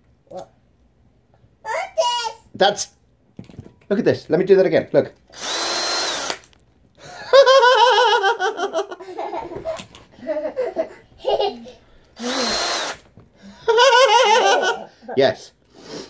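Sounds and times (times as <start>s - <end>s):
cordless drill whirring: 5.3s - 6.6s, 12.2s - 13.1s
person laughing high-pitched: 13.7s - 15.1s.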